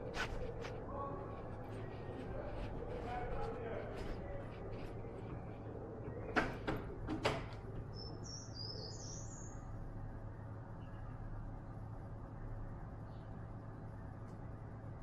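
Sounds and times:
steady low hum: 0.0 - 15.0
bird chirping: 7.8 - 11.8.

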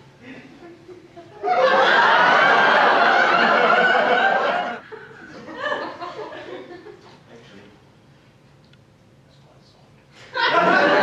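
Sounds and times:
audience laughing: 0.2 - 7.1, 10.2 - 11.0.

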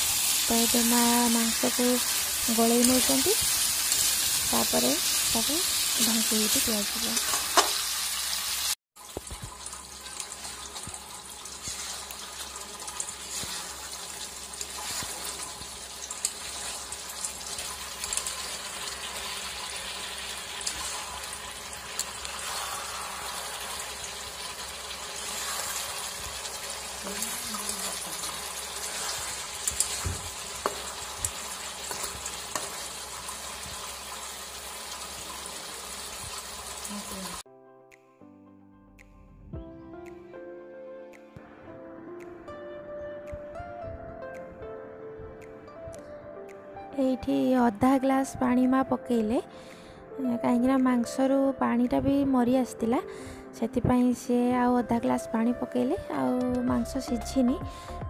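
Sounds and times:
curry sizzling and bubbling: 0.0 - 37.5
spatula scraping pan: 14.6 - 15.7, 25.2 - 26.5, 27.2 - 32.8.

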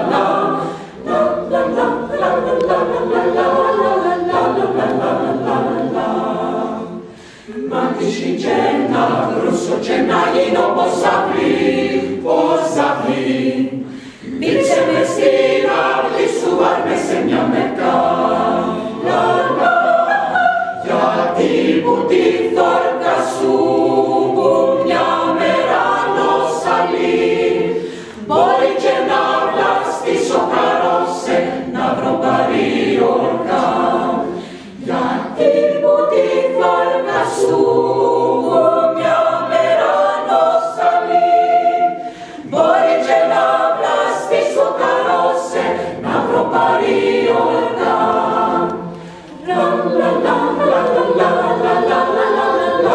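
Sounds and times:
mixed choir singing: 0.0 - 52.9.

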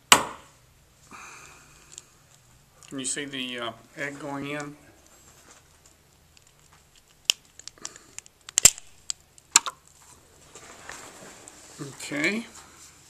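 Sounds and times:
eggshell cracking and crunching: 6.1 - 10.0.

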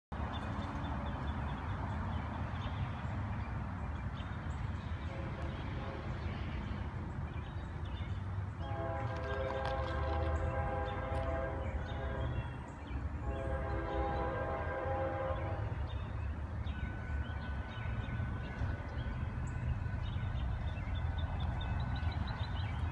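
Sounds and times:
freight train rumble: 0.1 - 22.9
locomotive air horn: 5.0 - 6.5, 8.6 - 16.0.

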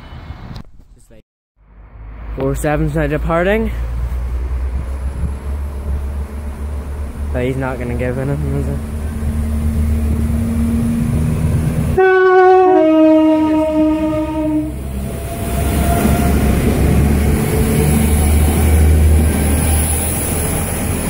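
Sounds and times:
train engine and wheel rumble: 0.0 - 21.0
two-tone train horn: 12.0 - 16.4.

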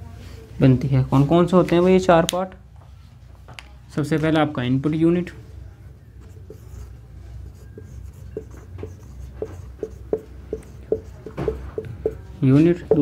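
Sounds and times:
marker squeaking on whiteboard: 6.2 - 13.0.

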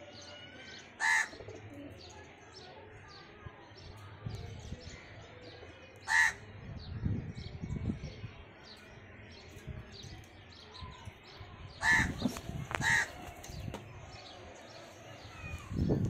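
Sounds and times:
crow cawing: 6.1 - 6.4, 12.8 - 13.1.

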